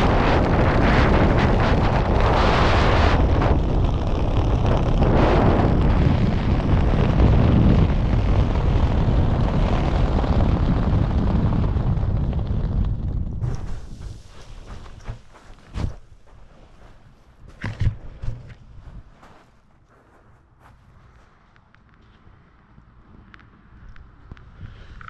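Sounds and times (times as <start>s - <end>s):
wind buffeting microphone: 0.0s - 19.4s.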